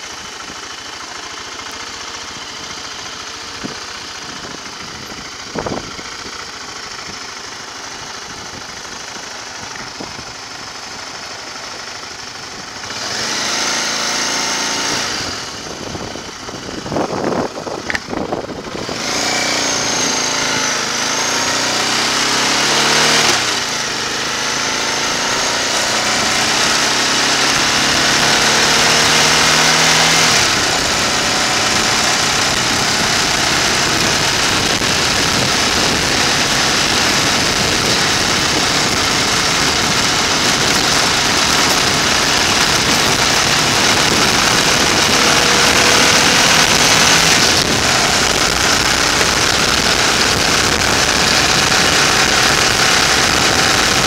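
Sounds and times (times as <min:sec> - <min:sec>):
motorcycle engine: 0:00.0 - 0:54.0
wind rushing: 0:32.4 - 0:54.0.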